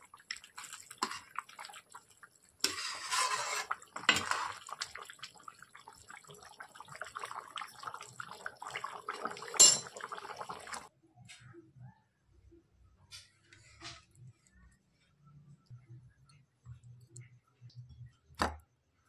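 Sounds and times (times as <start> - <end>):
ladle stirring curry: 0.0 - 10.8
curry bubbling with pops: 0.0 - 10.9
liquid sloshing: 0.0 - 10.9.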